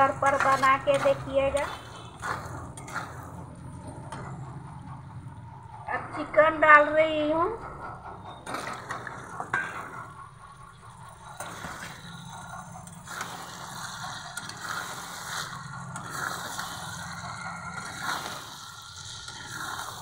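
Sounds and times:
spatula scraping a wok: 0.0s - 4.6s, 11.3s - 20.0s
food sizzling in oil: 11.4s - 20.0s.

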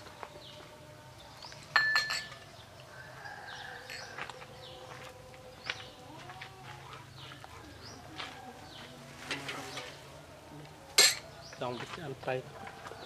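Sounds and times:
dishes clinking: 1.7s - 2.5s, 11.0s - 11.3s.

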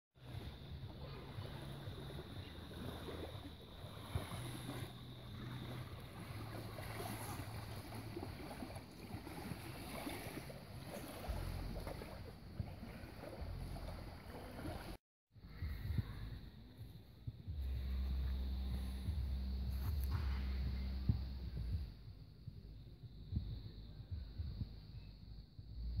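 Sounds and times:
small waves lapping on stones: 1.7s - 15.0s.

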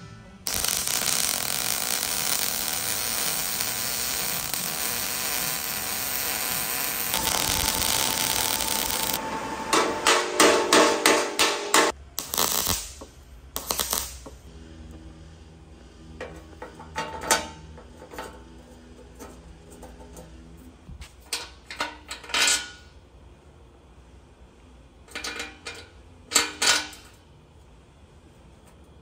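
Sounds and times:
welder crackling hiss: 0.5s - 9.2s, 11.8s - 14.5s.

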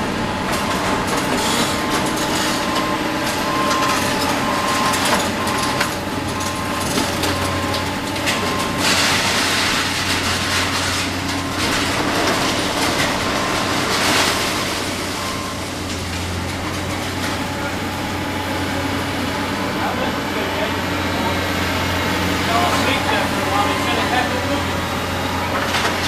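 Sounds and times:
diesel engine low drone: 0.0s - 26.0s
reversing beeper beeps: 1.5s - 9.4s, 11.5s - 15.8s, 19.5s - 25.5s.

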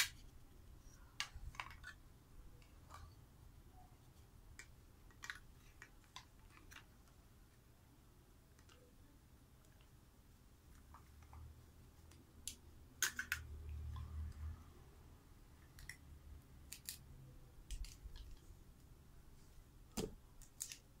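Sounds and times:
plastic toy pieces clicking: 12.5s - 13.5s, 16.7s - 17.0s.

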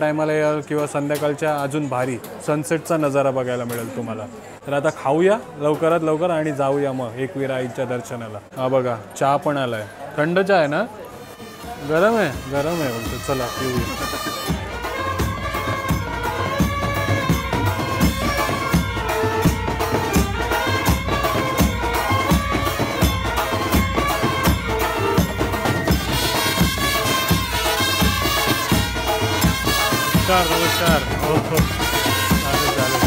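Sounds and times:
background music with drum beat: 11.2s - 33.0s.

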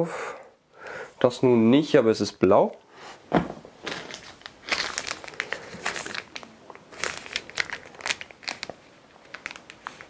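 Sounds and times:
packaging crinkling and rustling: 3.8s - 10.0s.

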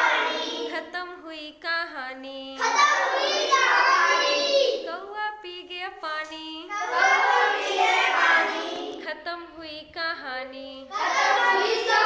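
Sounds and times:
children singing in unison: 0.0s - 1.0s, 2.6s - 4.9s, 6.7s - 9.1s, 10.9s - 12.0s.

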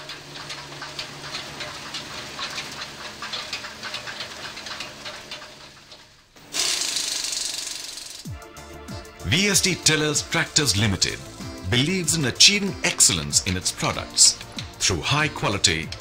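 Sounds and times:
wheels clattering over concrete ribs: 0.0s - 8.4s, 9.0s - 16.0s
tractor engine running: 0.0s - 16.0s
loud steady hiss: 6.4s - 8.3s.

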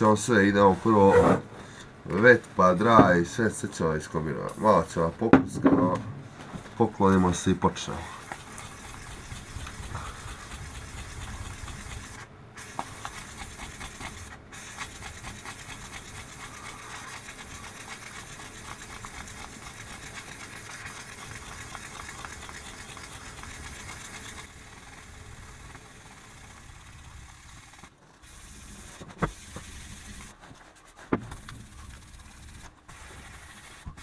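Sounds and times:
sandpaper rasping on steel: 8.1s - 25.1s, 25.9s - 34.0s.

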